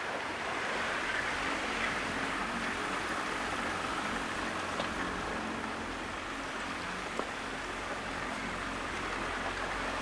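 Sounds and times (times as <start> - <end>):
small boat rushing through water: 0.0 - 10.0.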